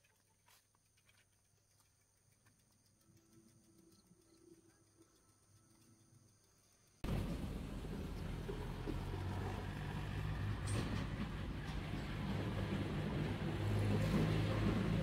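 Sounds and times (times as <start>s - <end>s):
road noise: 7.0s - 15.0s.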